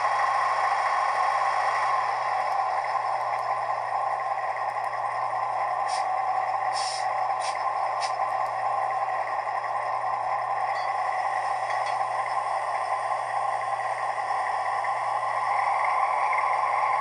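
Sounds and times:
diesel engine sound from small speaker: 0.0 - 17.0
short hisses: 6.7 - 8.1.

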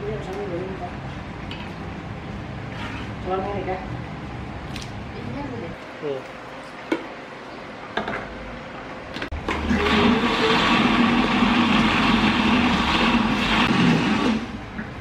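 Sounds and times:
electric blender running: 9.4 - 14.6.

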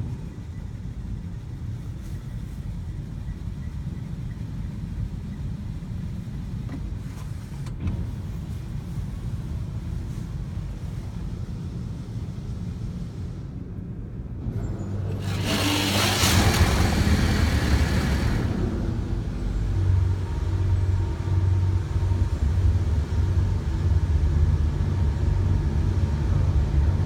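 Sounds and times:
car wash low rumble: 0.0 - 27.0
water sheeting over windshield: 15.1 - 18.8
water spray hissing on car: 15.2 - 18.8.

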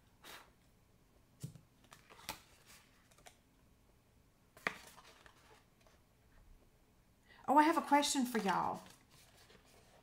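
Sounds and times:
papery rustle of box folding: 8.2 - 10.0.

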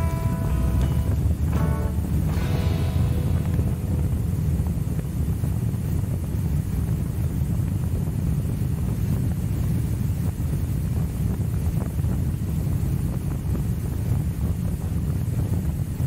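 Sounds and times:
motorcycle engine rumble: 0.0 - 9.5
wind buffeting microphone: 0.0 - 16.0.

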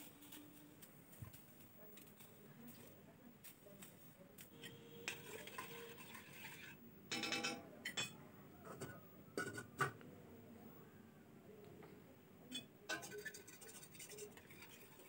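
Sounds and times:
metal ladle scraping a pot: 4.6 - 6.8, 12.9 - 15.0.

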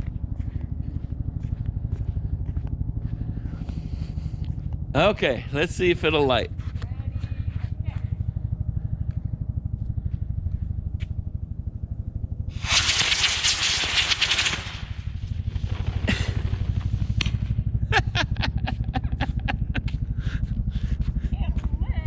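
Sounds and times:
low engine-like rumble: 0.0 - 22.0
model rocket motor hissing: 12.5 - 15.1
sharp ticks and clicks: 12.6 - 15.2.

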